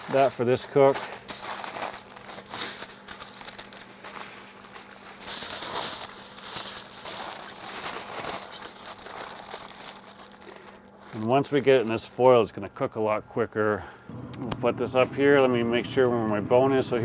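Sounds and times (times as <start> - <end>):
aluminium foil crinkling: 0.0 - 12.6.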